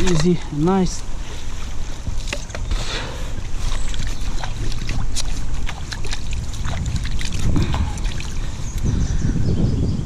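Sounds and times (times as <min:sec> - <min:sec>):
wind rumble on microphone: 0:00.0 - 0:10.0
water splash: 0:03.8 - 0:08.5.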